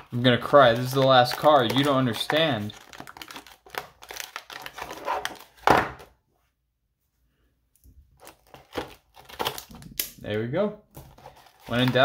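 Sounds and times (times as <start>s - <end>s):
plastic crinkling: 0.0s - 5.7s, 8.2s - 10.0s, 11.0s - 12.0s
cardboard tearing from plastic packaging: 0.2s - 5.6s, 8.2s - 10.0s, 11.1s - 12.0s.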